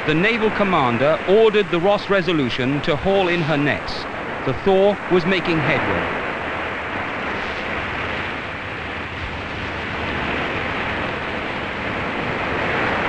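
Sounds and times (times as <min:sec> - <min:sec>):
churning sea water: 0:00.0 - 0:13.0
wind rushing: 0:03.1 - 0:13.0.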